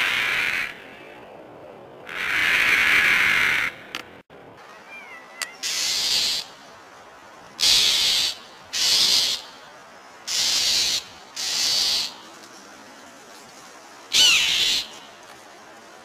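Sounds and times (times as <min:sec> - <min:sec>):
harsh hisses: 0:05.6 - 0:16.0.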